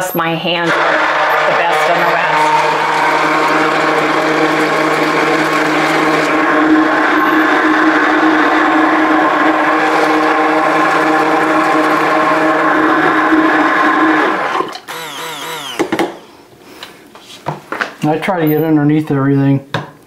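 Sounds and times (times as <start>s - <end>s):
immersion blender motor whine: 0.5s - 16.4s.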